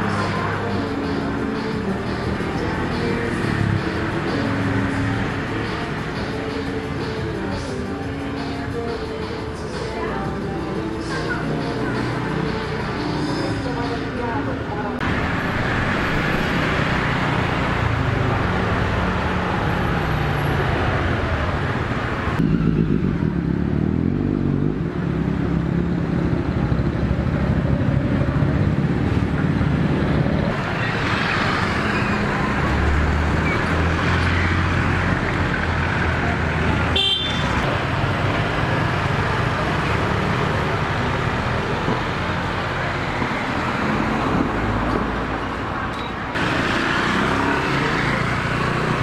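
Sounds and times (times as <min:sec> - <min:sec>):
scooters and cars passing: 0:00.0 - 0:49.0.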